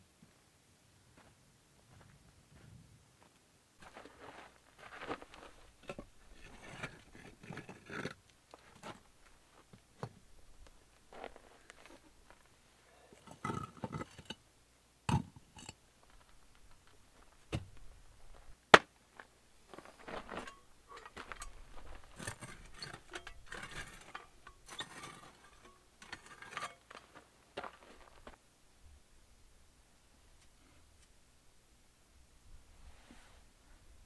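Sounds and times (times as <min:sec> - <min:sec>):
footsteps crunching on stones: 0:03.8 - 0:07.0, 0:10.5 - 0:12.5, 0:16.0 - 0:24.2, 0:26.4 - 0:28.4
rocks clacking and scraping: 0:03.8 - 0:12.5, 0:13.1 - 0:14.4, 0:15.1 - 0:28.4.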